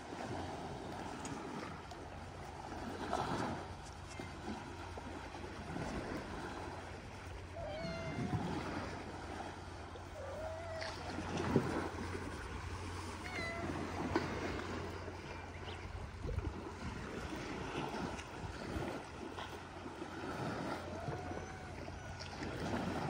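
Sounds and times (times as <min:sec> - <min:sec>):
sea noise: 0:00.0 - 0:23.0
wind: 0:00.0 - 0:23.0
cat meowing: 0:07.6 - 0:08.8, 0:13.1 - 0:13.9.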